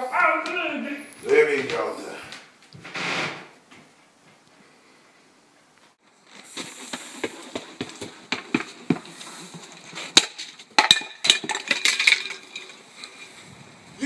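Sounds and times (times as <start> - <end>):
footsteps running on concrete: 6.5 - 9.7.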